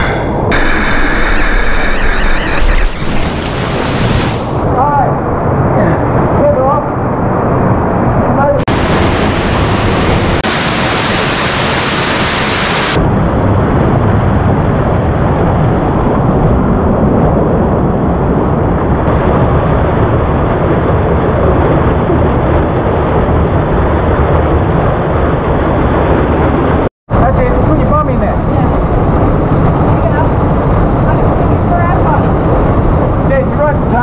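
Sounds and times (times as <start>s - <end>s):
waterfall rushing: 8.7s - 13.0s.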